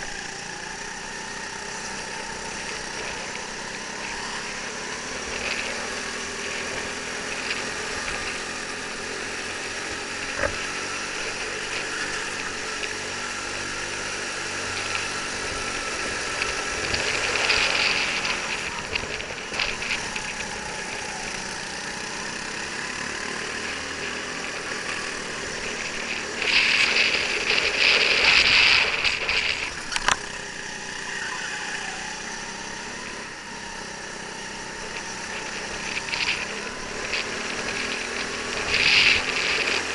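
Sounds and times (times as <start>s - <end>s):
go-kart engine running: 0.0s - 39.9s.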